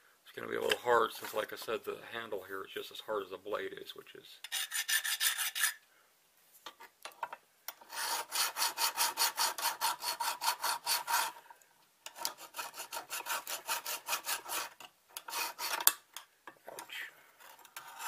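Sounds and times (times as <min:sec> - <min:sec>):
hand file scraping steel: 0:04.4 - 0:05.8, 0:07.7 - 0:11.4, 0:12.1 - 0:16.0, 0:17.4 - 0:18.0.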